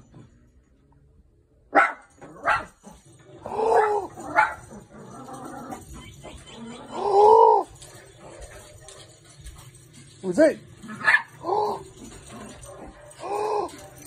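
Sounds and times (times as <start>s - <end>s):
small dog barking: 1.7s - 2.8s, 3.7s - 4.8s, 10.9s - 11.8s.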